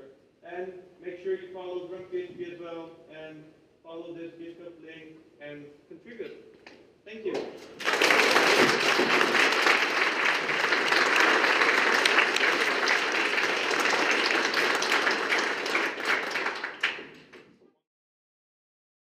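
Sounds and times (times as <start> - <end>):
audience applauding: 7.7 - 17.5.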